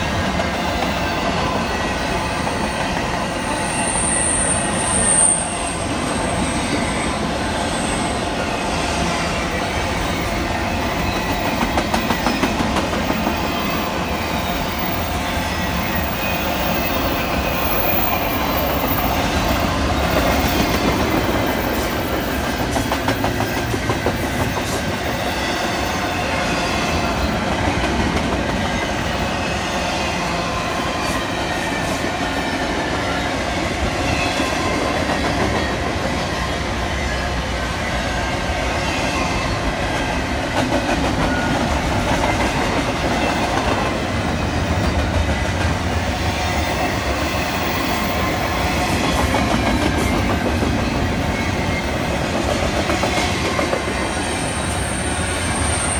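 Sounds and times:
steel wheels rumbling on rails: 0.0s - 55.9s.

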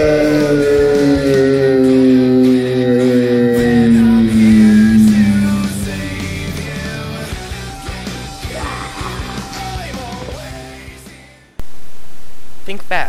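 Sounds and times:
long note sliding down in pitch: 0.0s - 8.2s
background music: 0.0s - 11.6s.

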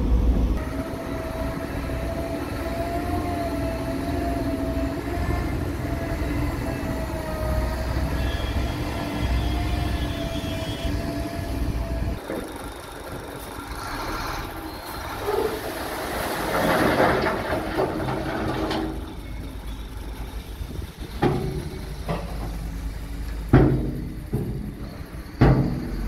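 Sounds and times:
diesel engine running: 0.0s - 26.0s
rock and soil sliding out: 15.5s - 19.0s.

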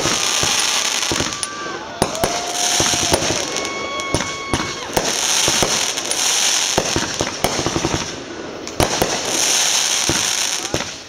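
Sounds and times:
firework whistle: 0.0s - 8.0s
fireworks bursting: 0.0s - 11.0s.

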